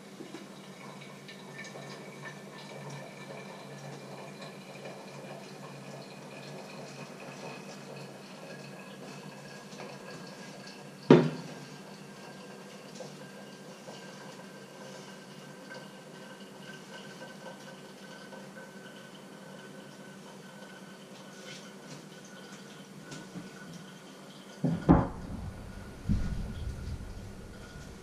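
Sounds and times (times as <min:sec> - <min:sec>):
hot water trickling into filter: 0:00.0 - 0:28.0
kettle clanking on hob: 0:24.6 - 0:28.0.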